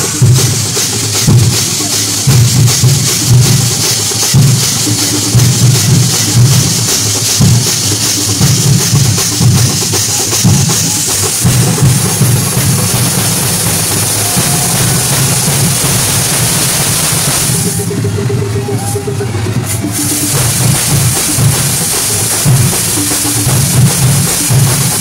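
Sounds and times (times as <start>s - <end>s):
crowd din: 0.0s - 25.0s
loud percussion drumming: 0.0s - 25.0s.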